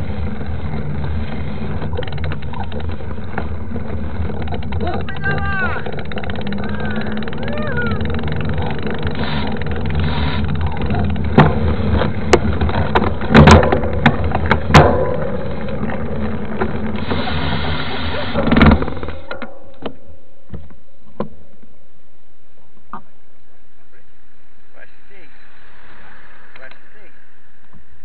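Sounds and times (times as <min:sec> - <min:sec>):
bike knocking and rattling: 0:00.0 - 0:21.7
bike tyres on asphalt: 0:00.0 - 0:28.0.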